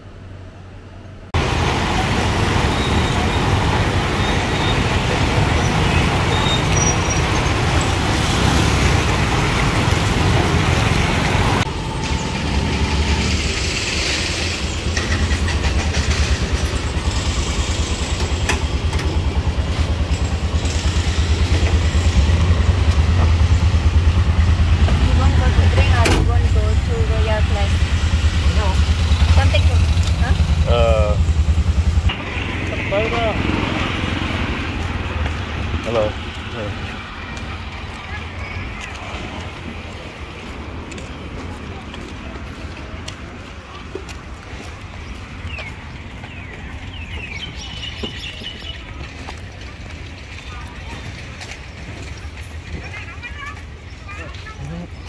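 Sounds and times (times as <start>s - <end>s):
auto-rickshaw engine running: 1.3s - 39.0s.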